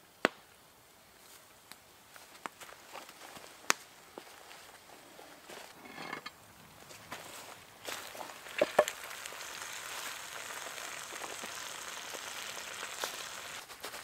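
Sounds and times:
food sizzling in hot oil: 7.9s - 13.7s.

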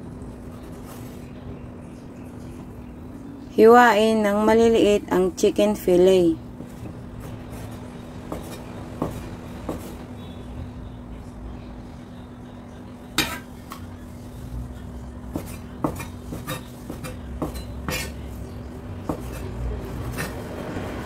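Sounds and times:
knife chopping on wooden board: 7.6s - 10.0s, 15.3s - 18.2s, 19.0s - 20.4s.

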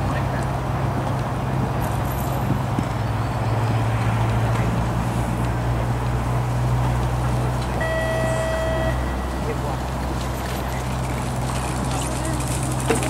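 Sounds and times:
low rumble with constant hum: 0.0s - 13.0s
electronic beep tone: 7.8s - 9.6s.

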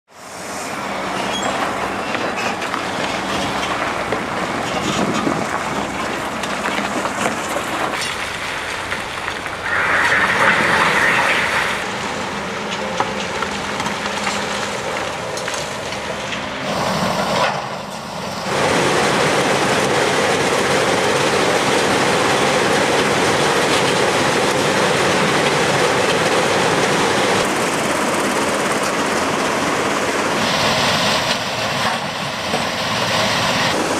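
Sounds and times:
crusher and conveyor rumbling: 0.4s - 33.9s
excavator digging concrete: 0.9s - 17.8s.

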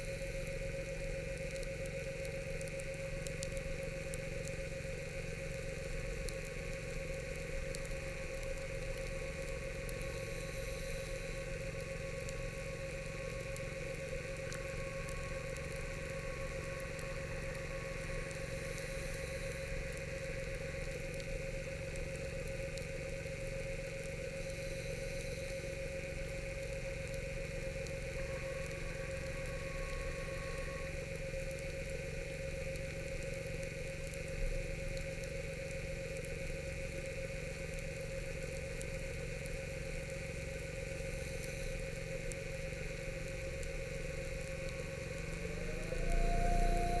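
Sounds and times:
electric motor whine: 27.8s - 31.3s, 43.8s - 47.0s.

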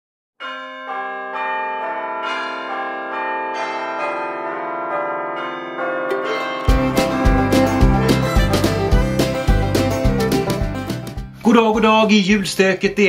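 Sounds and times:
bells ringing: 0.4s - 10.5s
loud bass-heavy music: 6.7s - 11.4s.

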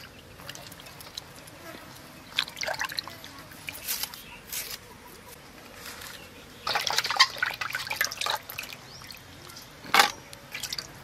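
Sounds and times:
water splashing in a steel bowl: 0.0s - 1.6s, 2.2s - 4.1s, 6.6s - 11.0s.

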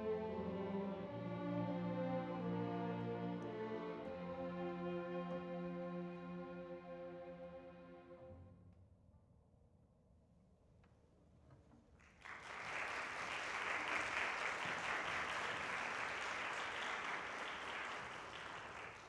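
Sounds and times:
audience applauding: 12.0s - 19.0s.

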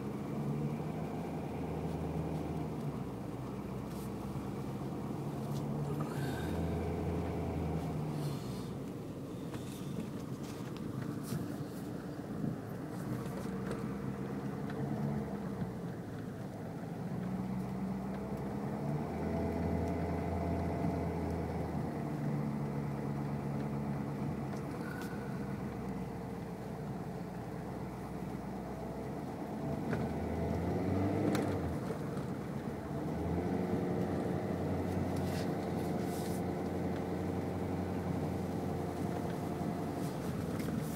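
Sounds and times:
car engine hum: 0.0s - 40.9s.

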